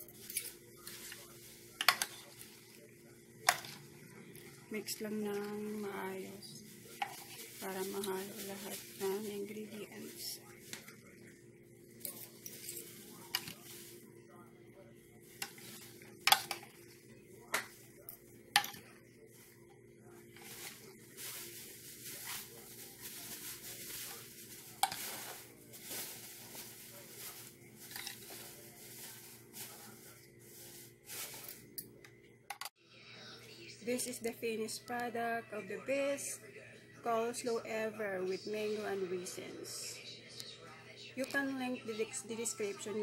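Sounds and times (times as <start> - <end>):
rustle of mixing cabbage: 5.4 - 10.8, 20.3 - 31.6.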